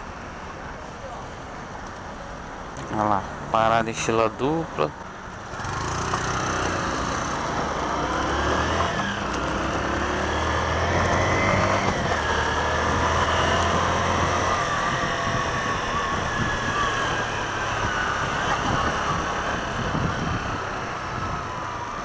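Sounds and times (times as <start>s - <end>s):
street traffic: 0.0s - 22.0s
wind: 0.0s - 22.0s
motorcycle engine accelerating: 5.5s - 22.0s.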